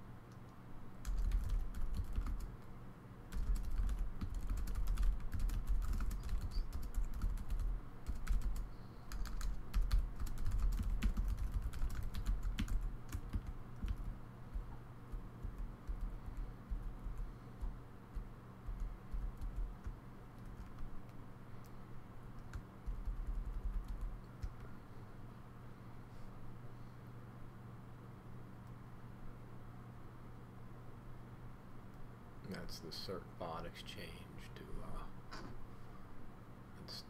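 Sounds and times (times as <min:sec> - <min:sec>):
faint low hum: 0:00.0 - 0:37.0
keyboard typing clicks: 0:03.3 - 0:21.8.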